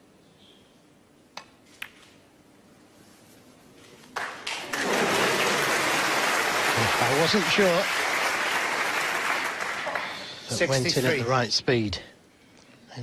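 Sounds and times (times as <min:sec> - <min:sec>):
audience applause: 0:04.2 - 0:10.5.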